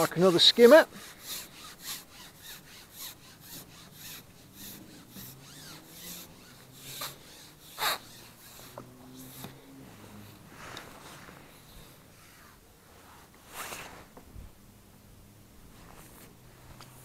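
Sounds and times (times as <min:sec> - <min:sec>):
fishing pole rasping through hands: 0:00.0 - 0:12.6.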